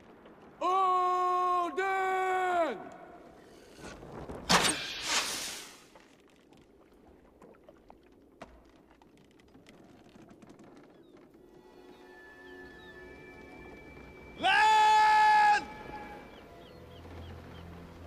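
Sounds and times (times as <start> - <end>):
faint wooden knocks and creaks: 6.0 - 11.6.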